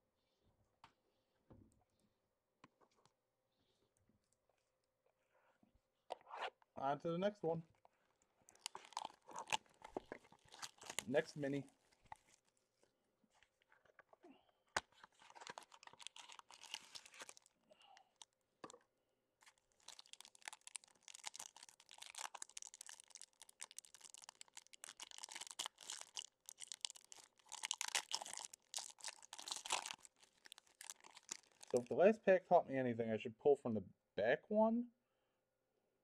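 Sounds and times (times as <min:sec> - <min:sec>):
wrapper crinkling and tearing: 0:08.5 - 0:12.6, 0:14.8 - 0:18.3, 0:19.4 - 0:31.9.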